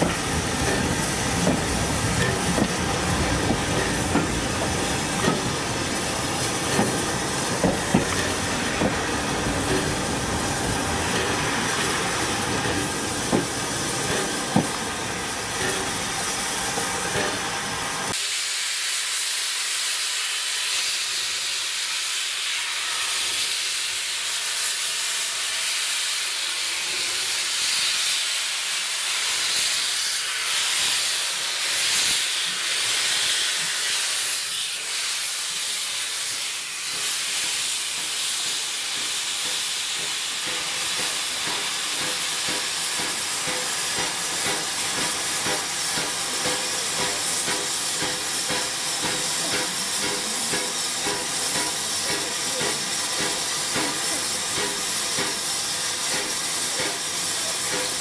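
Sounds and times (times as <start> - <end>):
sharp knocks and clanks: 0.0 - 2.8
loud hiss of escaping steam: 0.0 - 58.0
steam train rumbling: 0.0 - 58.0.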